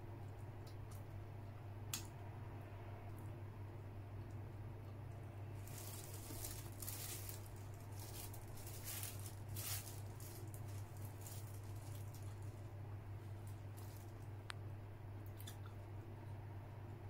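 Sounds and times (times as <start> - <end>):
steady low hum: 0.0 - 17.0
plastic wrapper crinkling: 5.6 - 14.3
quiet chewing: 10.6 - 12.6, 15.2 - 15.9.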